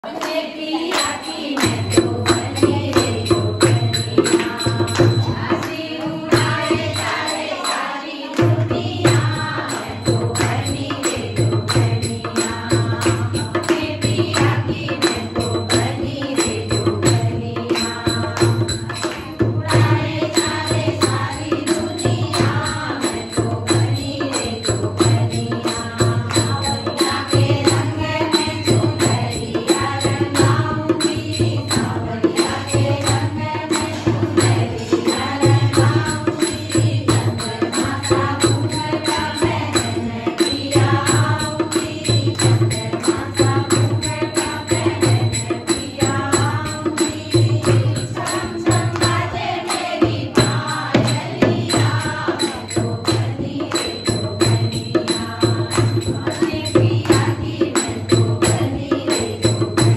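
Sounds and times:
hand clapping: 0.1s - 5.8s
steady drum beat: 1.6s - 7.3s, 8.4s - 59.9s.

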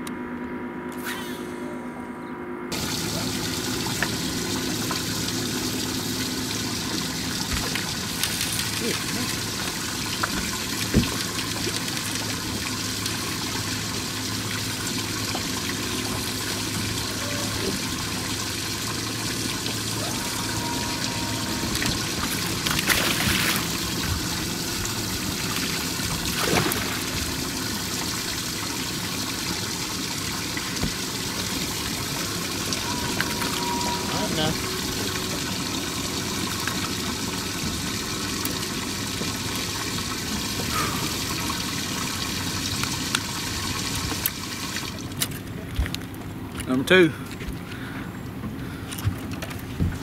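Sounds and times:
water splashing: 2.7s - 46.7s
running water trickling: 2.7s - 50.0s.

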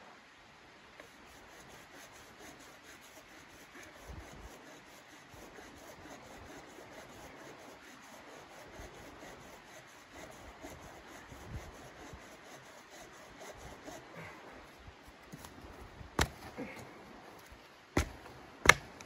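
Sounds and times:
wood chopping knocks: 16.2s - 16.5s, 18.0s - 19.0s.

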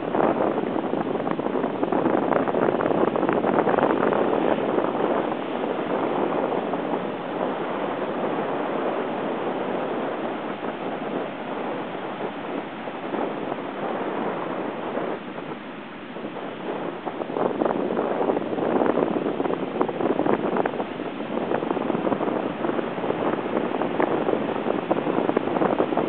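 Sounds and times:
heavy surf breaking: 0.0s - 26.0s
wind buffeting microphone: 0.0s - 26.0s.

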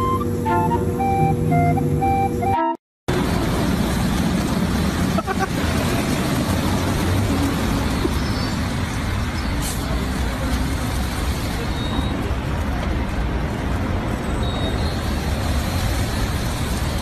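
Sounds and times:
car wash brushes spinning: 14.7s - 17.0s.

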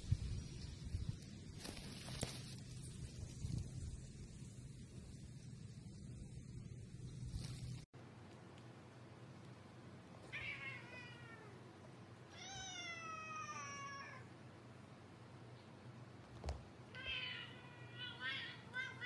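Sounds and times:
cats meowing: 10.2s - 11.7s, 12.3s - 14.3s, 16.9s - 19.0s.

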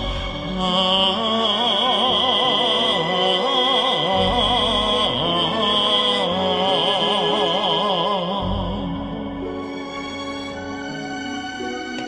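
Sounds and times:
man singing with vibrato: 0.0s - 9.4s
backing track music: 0.0s - 12.0s.

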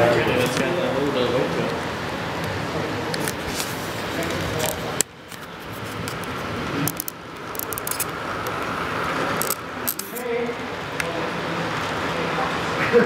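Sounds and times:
model train wheels clicking on rails: 2.4s - 12.3s.

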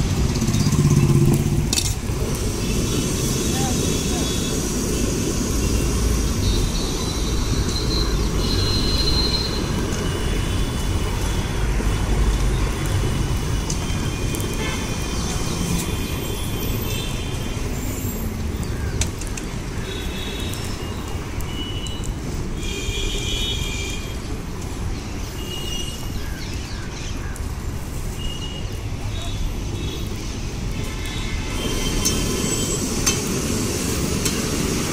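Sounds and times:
street traffic rumble: 0.0s - 34.9s
vehicle horn toots: 7.9s - 9.6s.

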